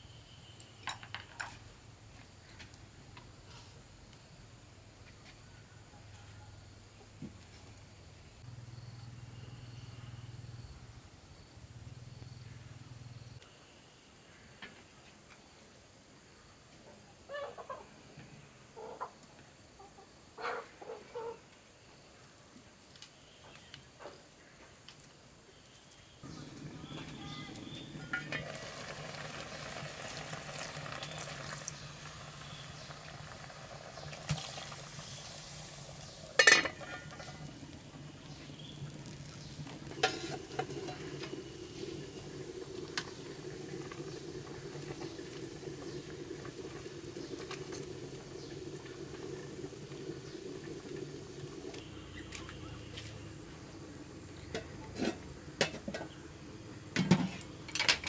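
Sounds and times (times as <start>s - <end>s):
pot lids clattering: 28.0s - 28.6s, 36.4s - 37.6s, 39.9s - 41.4s, 54.5s - 56.2s, 57.0s - 58.0s
spoon scraping in metal pot: 39.2s - 41.3s.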